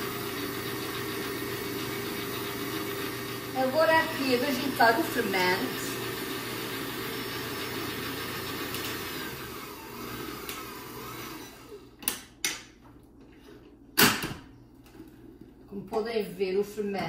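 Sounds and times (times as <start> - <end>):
electric stand mixer running: 0.0 - 12.0.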